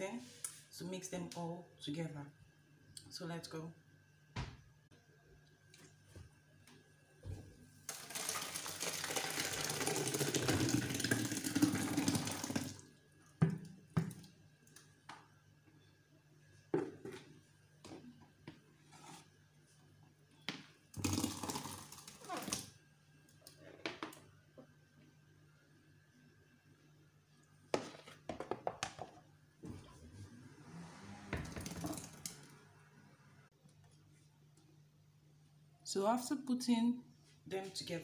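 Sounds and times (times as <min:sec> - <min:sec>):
juice pouring into metal pot: 0:07.9 - 0:12.9, 0:21.0 - 0:22.7, 0:31.4 - 0:32.5.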